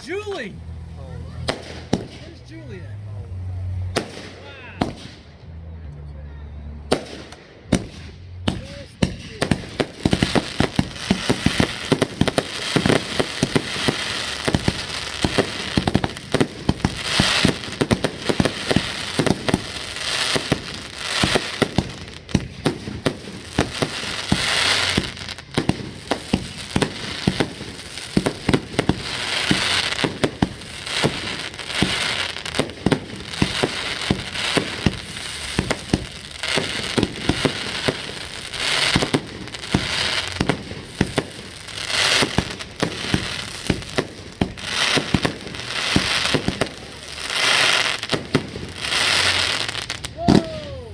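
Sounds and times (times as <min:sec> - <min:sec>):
fireworks bangs: 0:01.4 - 0:02.6, 0:03.9 - 0:05.4, 0:06.9 - 0:50.9.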